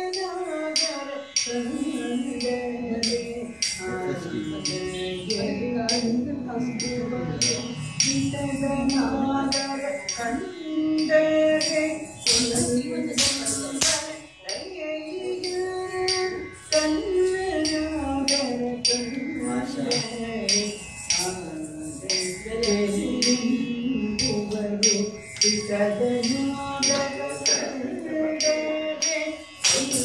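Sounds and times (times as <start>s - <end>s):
woman singing: 0.0s - 30.0s
sharp metallic beat strikes: 6.8s - 10.2s.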